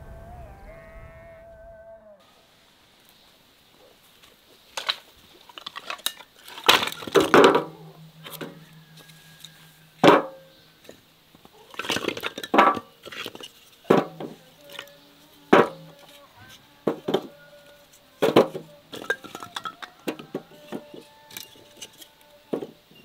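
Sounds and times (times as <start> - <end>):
wooden kindling knocking: 5.6 - 11.0, 11.7 - 14.9, 15.5 - 16.1, 16.8 - 17.4, 18.2 - 21.0.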